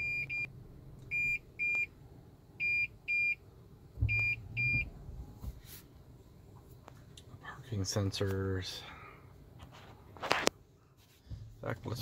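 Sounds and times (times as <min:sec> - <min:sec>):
car warning buzzer beeping: 0:00.0 - 0:00.5, 0:02.6 - 0:03.4, 0:04.1 - 0:04.9.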